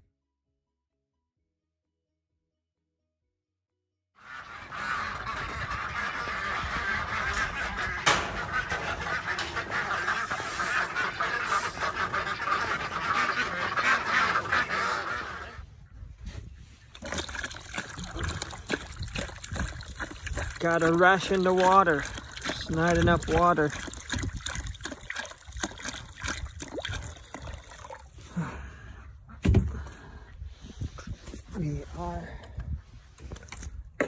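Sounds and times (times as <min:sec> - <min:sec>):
ducks quacking: 0:04.2 - 0:15.9, 0:17.8 - 0:28.0.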